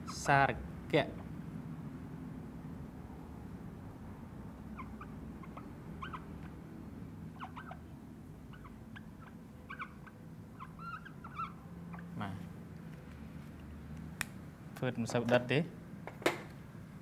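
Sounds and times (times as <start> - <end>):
low room hum: 0.0 - 17.0
marker squeaking on whiteboard: 4.8 - 6.6, 7.3 - 12.2.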